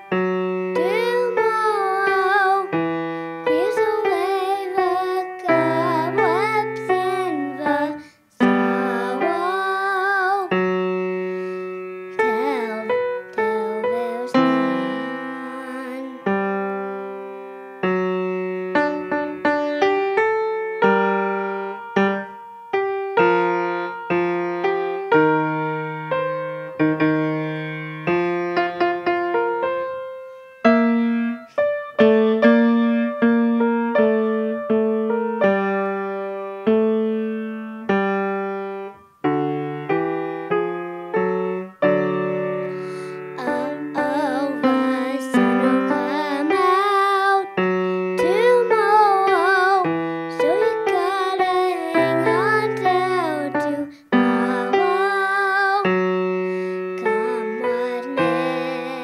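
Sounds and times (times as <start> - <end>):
solo piano: 0.0 - 59.0
child singing: 0.7 - 10.8, 12.2 - 16.5, 43.2 - 56.2, 57.0 - 59.0.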